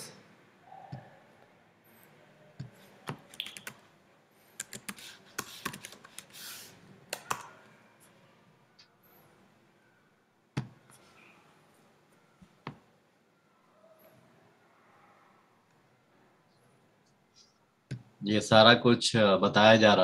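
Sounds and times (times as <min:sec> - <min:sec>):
computer keyboard typing: 0:02.6 - 0:03.8, 0:04.6 - 0:06.4, 0:07.1 - 0:07.6.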